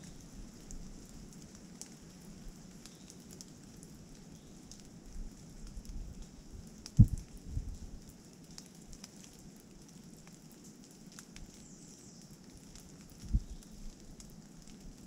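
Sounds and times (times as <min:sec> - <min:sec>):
light rain pattering: 0:00.0 - 0:15.0
wind rumble on microphone: 0:05.1 - 0:08.1, 0:13.1 - 0:14.0.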